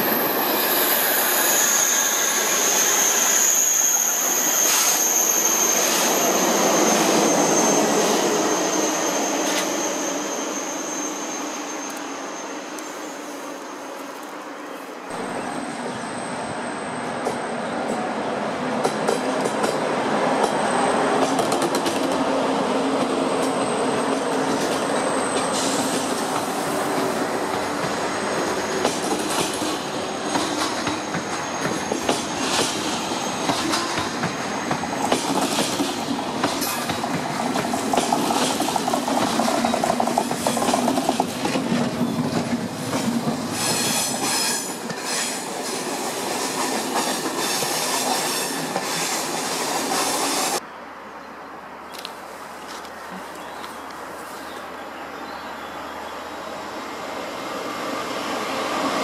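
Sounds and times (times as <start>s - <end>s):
high wheel squeal: 0.0s - 14.1s, 23.6s - 26.9s, 30.0s - 35.0s, 43.5s - 50.6s
train rumble: 0.0s - 50.6s.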